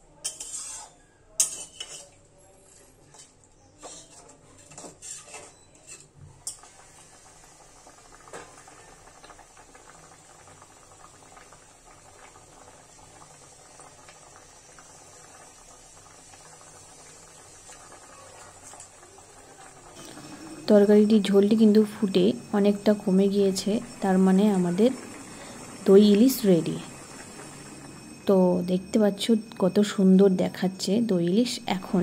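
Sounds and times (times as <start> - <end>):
metal spatula scraping a pan: 0.2 - 6.6
gravy bubbling: 6.7 - 29.9.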